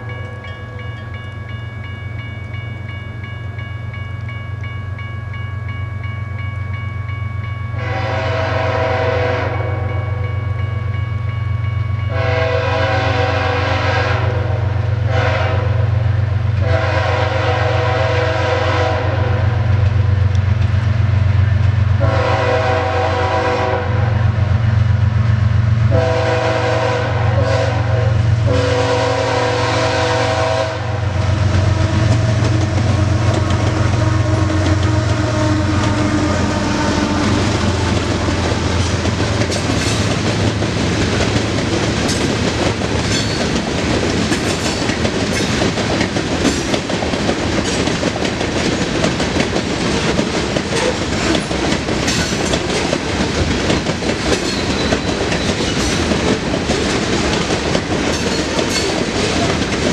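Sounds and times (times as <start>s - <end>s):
locomotive air horn blasts: 7.8s - 10.2s, 12.1s - 16.0s, 16.6s - 19.8s, 22.0s - 24.3s, 25.9s - 37.9s
train wheels clickety-clack: 19.7s - 23.7s, 31.4s - 59.9s.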